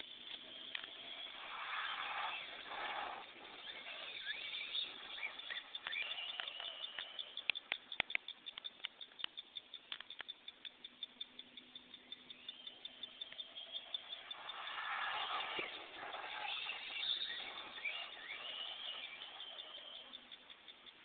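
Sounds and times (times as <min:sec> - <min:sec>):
rc truck motor whirring: 0:00.0 - 0:09.1, 0:12.4 - 0:21.0
rapid even ticking: 0:00.0 - 0:21.0
sharp clicks: 0:00.0 - 0:21.0.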